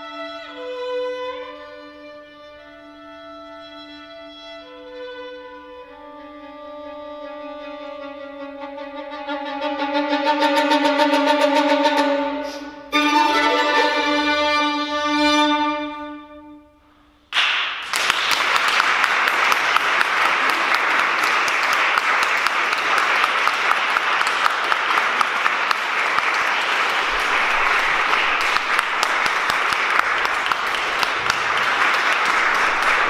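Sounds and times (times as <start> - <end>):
violins holding a note: 8.7 - 17.1
audience applause: 17.4 - 33.0.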